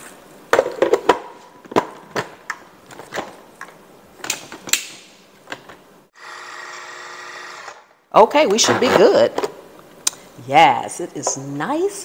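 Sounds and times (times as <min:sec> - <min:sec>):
food processor motor whirring: 0:06.2 - 0:07.9.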